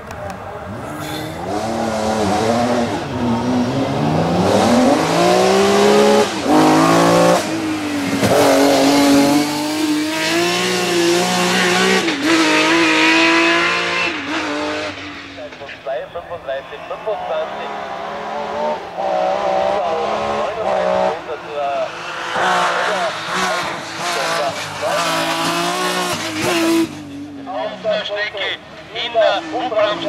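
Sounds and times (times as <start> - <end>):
race car engine accelerating: 0.1 - 15.9, 16.7 - 28.0.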